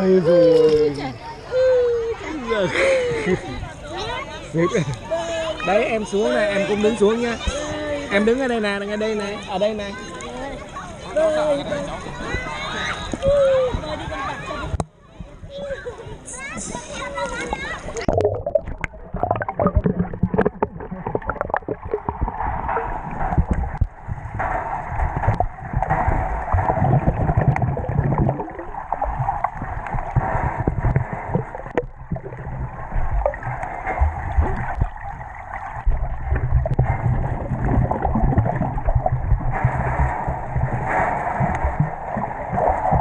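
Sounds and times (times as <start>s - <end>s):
muffled underwater churning and gurgling: 16.4s - 43.0s.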